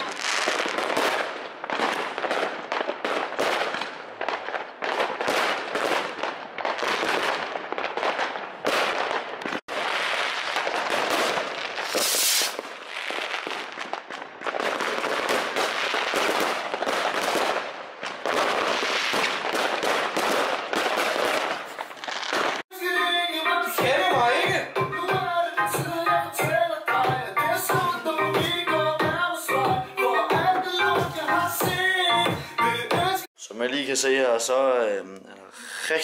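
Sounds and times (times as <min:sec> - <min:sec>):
fireworks crackling and banging: 0:00.0 - 0:22.7.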